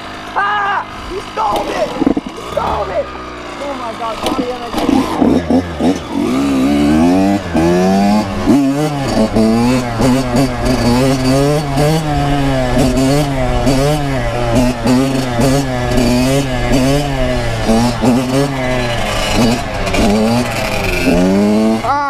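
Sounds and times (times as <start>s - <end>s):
dirt bike engine revving: 0.0s - 22.0s.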